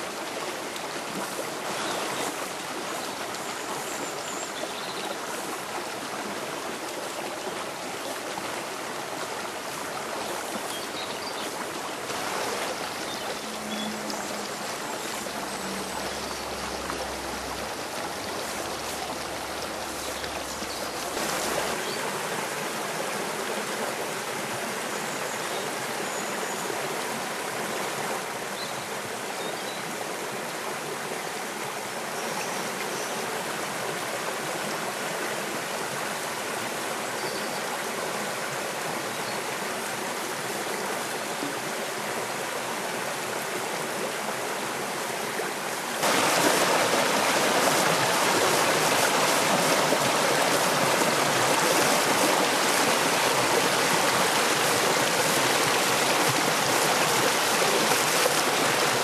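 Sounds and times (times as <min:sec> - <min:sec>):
stream rushing over stones: 0:00.0 - 0:59.0.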